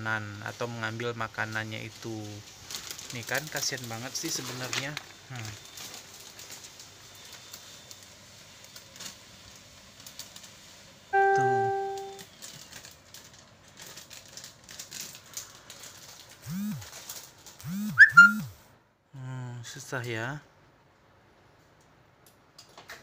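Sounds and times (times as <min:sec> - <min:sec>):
piano-like note: 0:11.2 - 0:12.2
cat crunching dry kibble: 0:12.2 - 0:17.6
squeaky chirp: 0:17.7 - 0:18.5.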